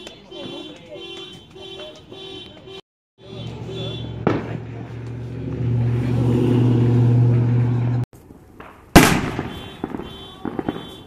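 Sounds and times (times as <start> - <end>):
firework bang: 4.2 - 4.6, 8.6 - 11.0.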